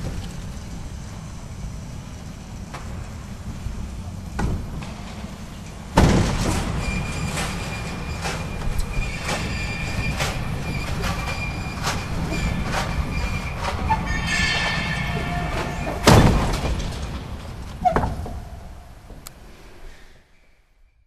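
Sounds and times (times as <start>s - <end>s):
heavy metal doors rumbling on rails: 0.0s - 19.8s
metal clanks: 4.4s - 18.8s
loud metal bang: 6.0s - 8.5s, 9.1s - 18.1s
metallic squeal: 6.7s - 17.0s.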